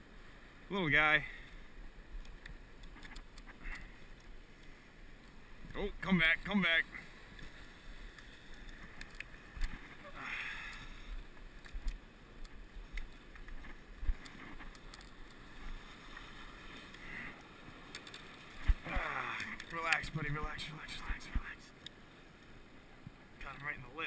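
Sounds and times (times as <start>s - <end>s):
faint wind: 0.0s - 24.0s
small waves washing on rocks: 13.1s - 21.4s.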